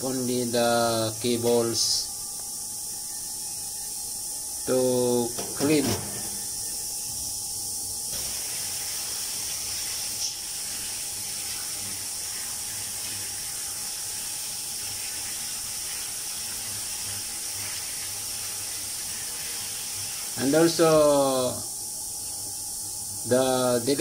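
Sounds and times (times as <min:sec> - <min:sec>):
water spraying onto metal tray: 0:08.1 - 0:21.6.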